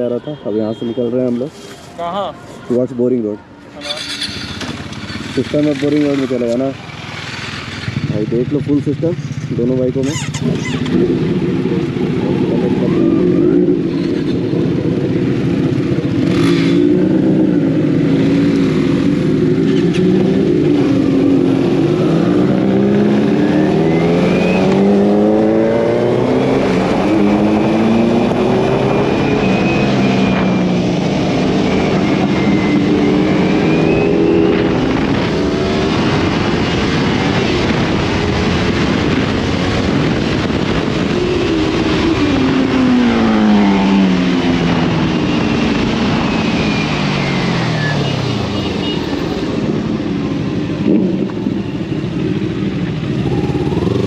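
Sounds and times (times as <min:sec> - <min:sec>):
motorcycle engines accelerating: 0:00.0 - 0:54.0
wind rush: 0:10.4 - 0:48.6.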